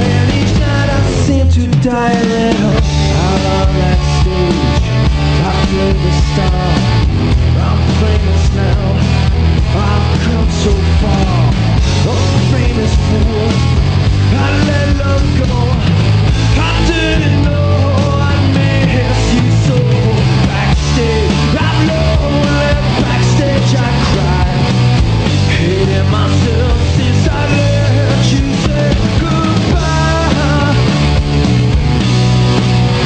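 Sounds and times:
drums: 0.0 - 33.0
electric guitar: 0.0 - 33.0
man shouting vocals: 16.5 - 24.6.

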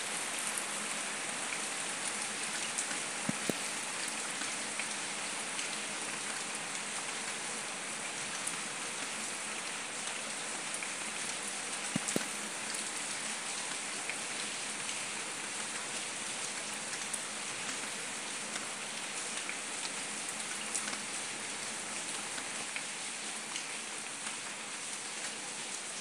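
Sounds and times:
rain on wet paving: 0.0 - 26.0.

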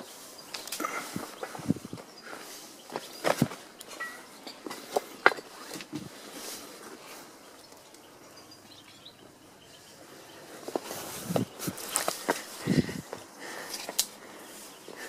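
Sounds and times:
faint outdoor background: 0.0 - 15.0
footsteps crunching on rubble: 10.6 - 14.0.

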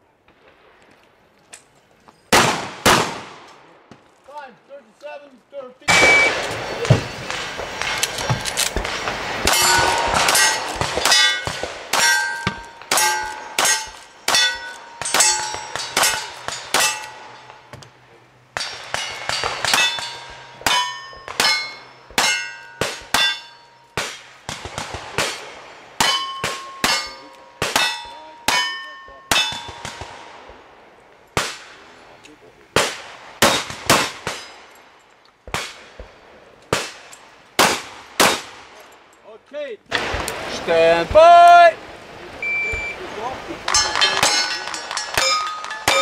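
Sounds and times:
gunshots: 2.3 - 3.6, 5.9 - 17.8, 18.5 - 30.6, 32.7 - 34.7, 35.4 - 38.8, 39.9 - 41.4
steel target ringing: 5.9 - 7.4, 9.5 - 17.8, 18.6 - 24.0, 26.0 - 30.0, 43.7 - 46.0.

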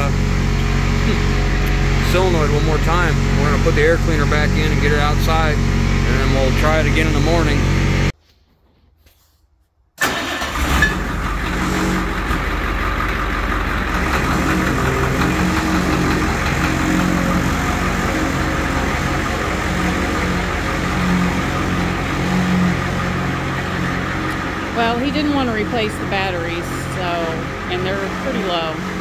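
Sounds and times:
diesel engine idling: 0.0 - 8.2, 10.0 - 29.0.

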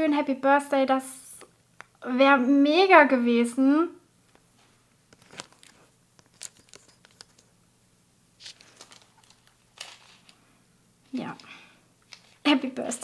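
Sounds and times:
plastic sleeve crinkling: 5.1 - 7.6, 8.4 - 10.5, 11.1 - 12.6.

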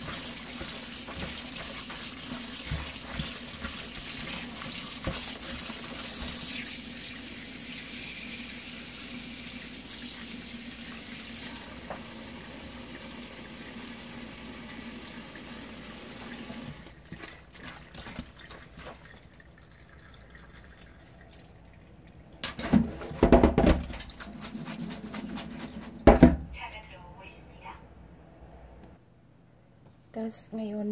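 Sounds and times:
tap running into sink: 11.4 - 12.2.

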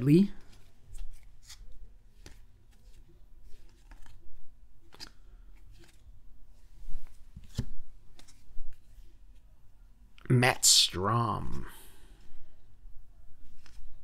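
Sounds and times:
cards flipping and rustling: 0.4 - 6.2, 6.8 - 9.4, 13.4 - 14.0.

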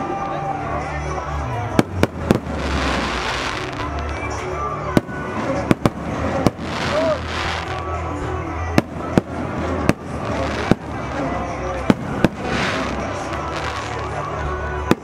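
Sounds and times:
crowd noise: 0.0 - 15.0
fireworks bangs: 1.7 - 8.0, 8.7 - 14.2, 14.8 - 15.0.

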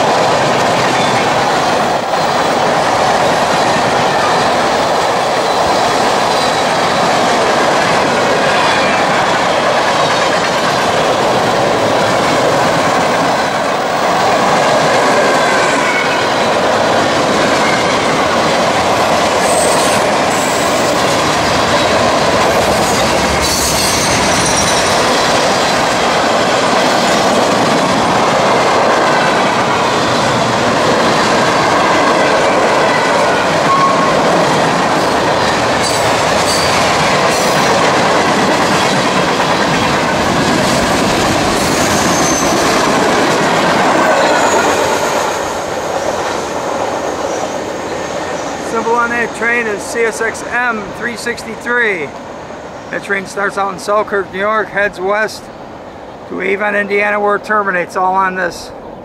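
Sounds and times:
train wheels rumbling on rails: 0.0 - 57.8
wheels squealing: 15.3 - 26.2, 30.0 - 46.4.

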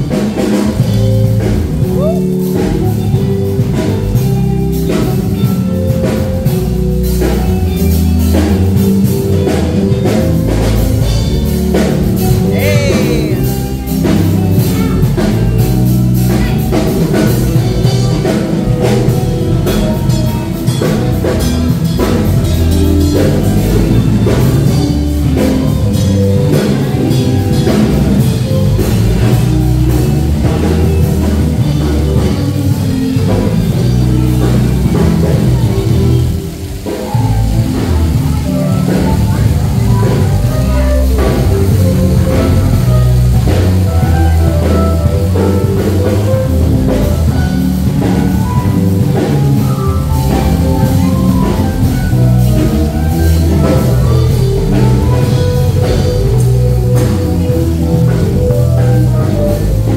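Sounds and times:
drum kit: 0.0 - 59.9
guitar: 0.0 - 59.9
live rock band playing: 0.0 - 59.9
person singing: 1.8 - 2.7, 12.3 - 15.4.

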